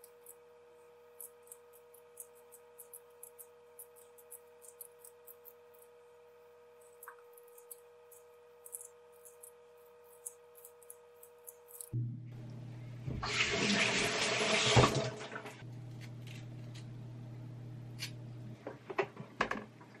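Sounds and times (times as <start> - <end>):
faint steady hum: 0.0 - 20.0
peeler scraping potato skin: 1.2 - 6.0, 6.8 - 12.0.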